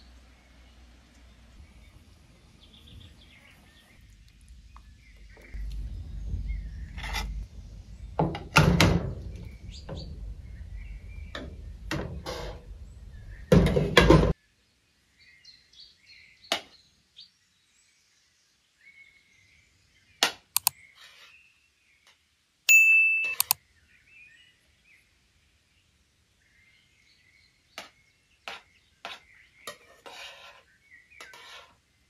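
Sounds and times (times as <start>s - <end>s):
faint chirping: 0.0s - 13.7s
metal ladle scraping a pot: 6.8s - 7.5s, 11.2s - 12.8s, 28.5s - 31.8s
spoon clicking on a metal plate: 22.9s - 23.6s.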